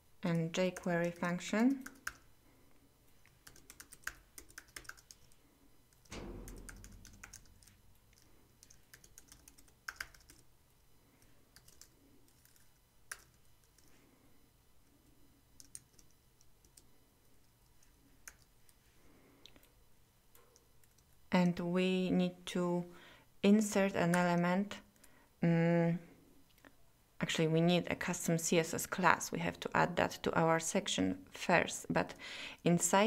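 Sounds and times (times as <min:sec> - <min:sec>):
typing on computer keyboard: 0:00.3 - 0:02.3, 0:03.3 - 0:10.5, 0:11.2 - 0:13.9, 0:15.6 - 0:16.9, 0:17.6 - 0:18.5, 0:20.5 - 0:21.2
dull low thump: 0:06.1 - 0:07.2.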